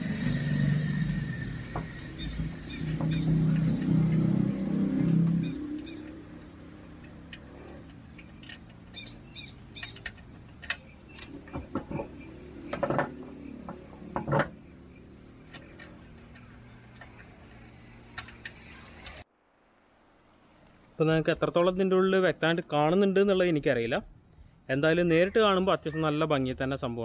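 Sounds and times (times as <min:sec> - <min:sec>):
birds chirping: 0:01.4 - 0:19.2
knocks and scrapes of spare wheel: 0:06.9 - 0:14.9.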